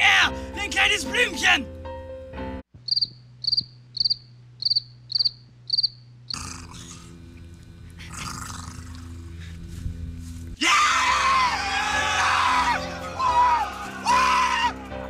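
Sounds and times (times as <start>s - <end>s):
music: 0.0s - 2.7s, 9.4s - 15.0s
cricket chirping: 2.8s - 7.9s
low hum: 2.8s - 10.6s.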